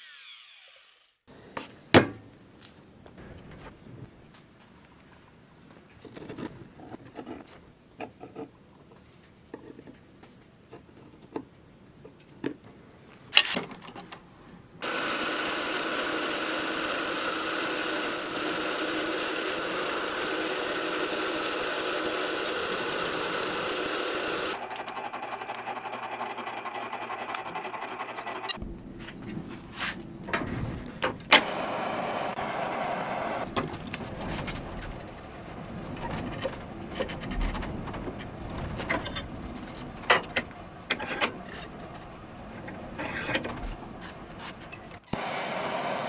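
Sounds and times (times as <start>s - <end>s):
milling machine cutting steel: 14.8s - 28.6s, 31.3s - 37.0s.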